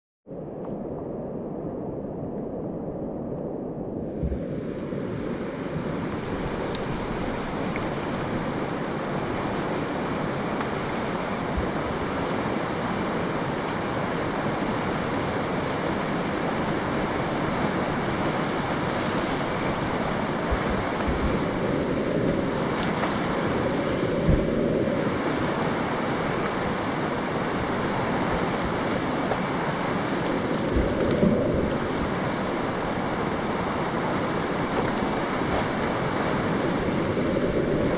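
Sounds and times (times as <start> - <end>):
wind buffeting microphone: 0.7 - 37.9
river rapids rushing over rock: 5.4 - 37.9
low thumps: 20.4 - 21.5.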